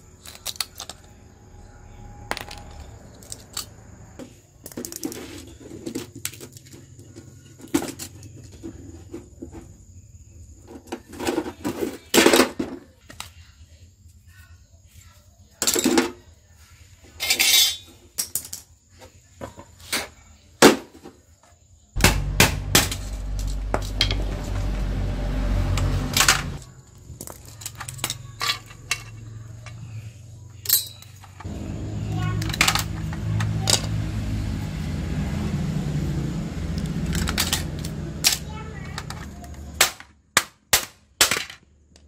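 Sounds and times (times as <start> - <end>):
small parts clinking on concrete: 0.0 - 1.3, 2.2 - 8.6, 17.2 - 20.0, 26.1 - 31.5, 32.2 - 34.0, 36.7 - 40.2, 41.2 - 42.0
low steady hum: 22.0 - 26.6, 31.4 - 38.4.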